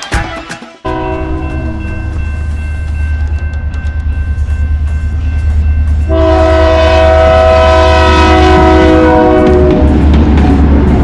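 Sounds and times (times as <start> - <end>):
diesel locomotive engine rumbling: 0.8 - 11.0
train air horn blast: 6.1 - 10.0.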